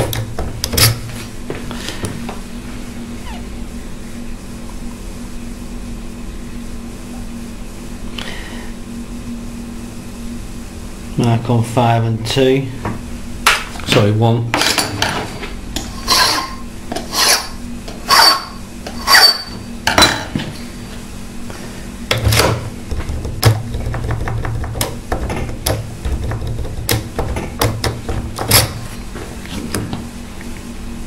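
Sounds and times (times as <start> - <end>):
file scraping a key blank: 16.0 - 19.4.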